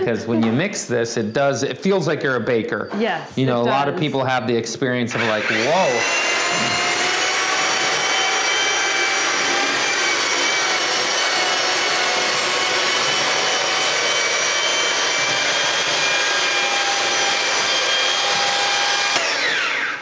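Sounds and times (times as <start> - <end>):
paddle mixer motor whine: 5.1 - 20.0.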